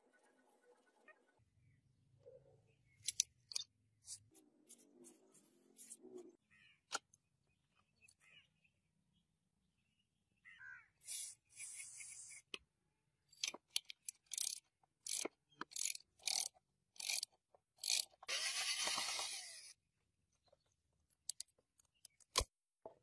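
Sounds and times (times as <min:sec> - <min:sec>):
tool scraping and rasping: 0:14.3 - 0:19.7.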